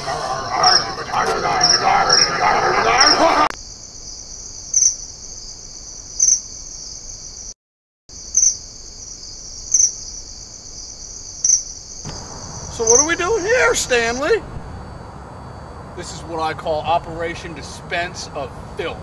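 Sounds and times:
murmur of low voices: 0:00.0 - 0:03.5
crickets trilling: 0:00.0 - 0:19.0
loud cricket chirp: 0:00.0 - 0:19.0.

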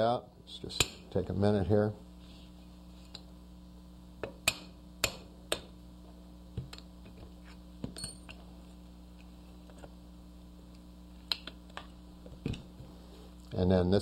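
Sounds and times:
ringing metal clink: 0:08.0 - 0:08.3.

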